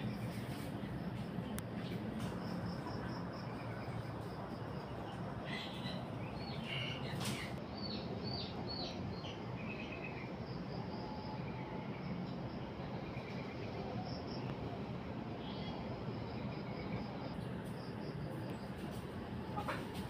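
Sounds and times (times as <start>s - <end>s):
small birds chirping: 0.0s - 10.2s.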